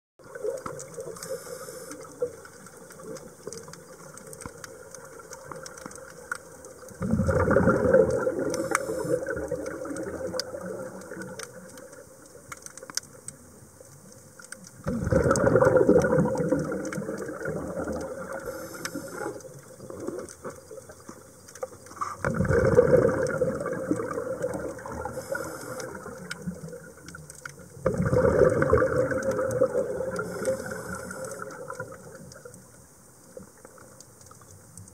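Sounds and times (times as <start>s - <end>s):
exhaled bubbles underwater: 0.2s - 12.9s, 14.8s - 34.5s
faint underwater crackle: 0.2s - 34.9s
regulator inhalation hiss: 1.1s - 2.2s, 8.6s - 9.5s, 18.4s - 19.5s, 25.0s - 26.2s, 30.2s - 31.6s.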